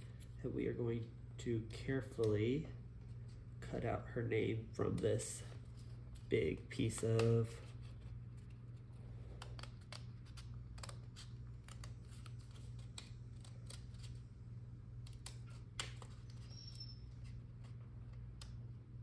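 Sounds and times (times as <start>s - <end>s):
steady low hum: 0.0s - 19.0s
small scissors snipping paper: 8.4s - 14.2s, 15.0s - 16.5s.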